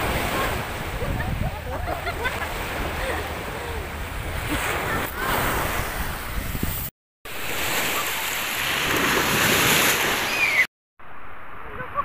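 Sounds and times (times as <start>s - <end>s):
sea surf breaking: 0.0s - 10.7s
children splashing in waves: 7.3s - 10.7s.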